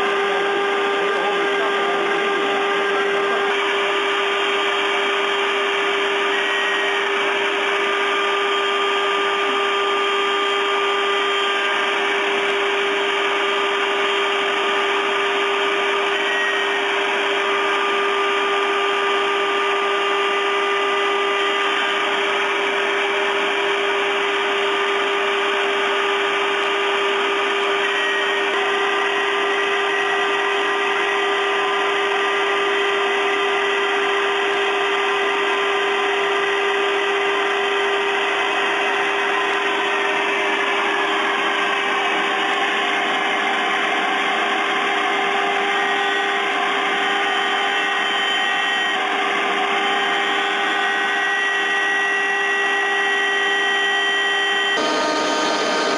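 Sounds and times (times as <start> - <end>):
spindle whine: 47.2 - 55.9.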